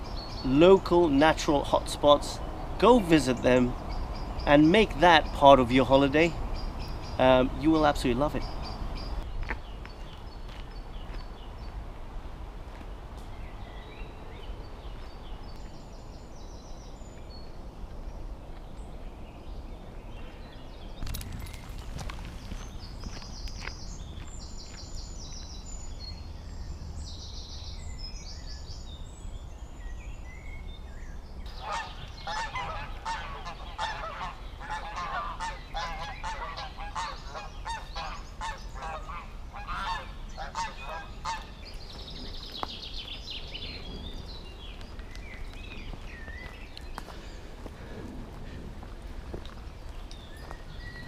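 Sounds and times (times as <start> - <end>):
small birds chirping: 0.0 - 11.8, 12.9 - 51.0
steady low rumble: 29.0 - 50.8
geese honking: 31.5 - 41.6.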